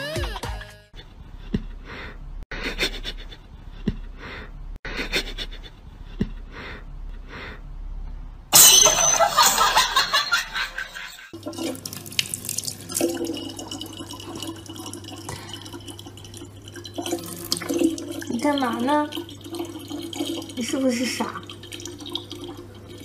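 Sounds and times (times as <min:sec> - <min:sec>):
background music with beat: 0:00.0 - 0:00.8
tap water running into bottle: 0:11.4 - 0:23.0.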